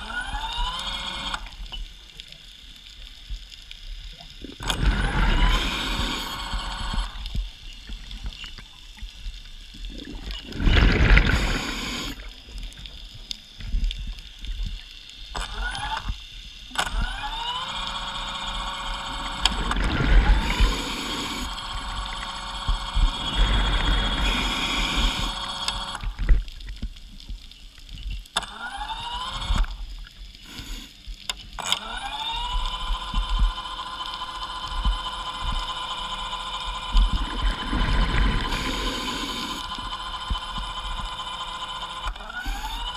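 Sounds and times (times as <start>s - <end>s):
underwater scooter motor whining: 0.0s - 2.0s, 4.5s - 8.6s, 9.9s - 13.7s, 15.3s - 26.9s, 28.3s - 29.9s, 31.6s - 42.9s
bubbling rushes: 4.4s - 8.2s, 9.7s - 12.9s, 18.6s - 26.8s, 32.0s - 42.9s.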